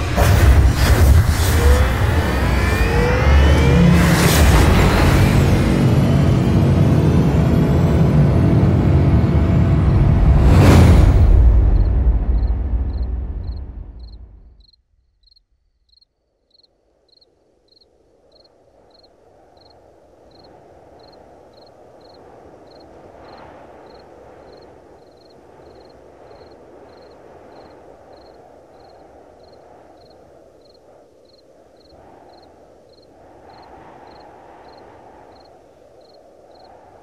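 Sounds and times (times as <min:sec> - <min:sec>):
low rushing noise: 0:00.0 - 0:14.7
deep rumble: 0:00.0 - 0:15.4
cricket chirping: 0:11.6 - 0:37.0.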